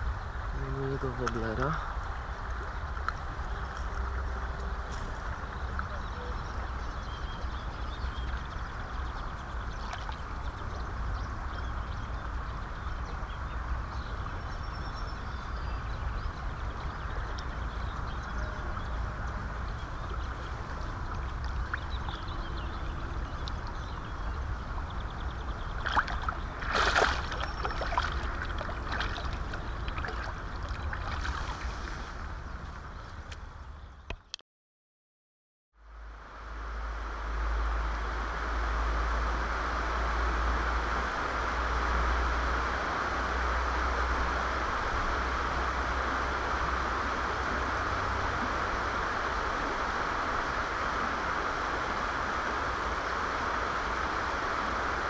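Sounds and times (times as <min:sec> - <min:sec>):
river water flowing: 0:00.0 - 0:33.8, 0:36.0 - 0:55.0
splashing in shallow water: 0:09.6 - 0:10.5, 0:25.5 - 0:32.4.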